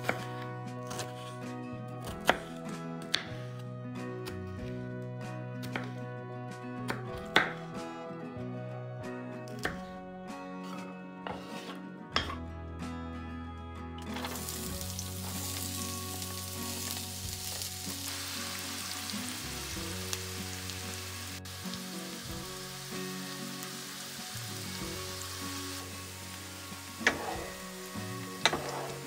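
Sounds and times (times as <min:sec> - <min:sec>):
onion sizzling in a frying pan: 0:14.2 - 0:29.0.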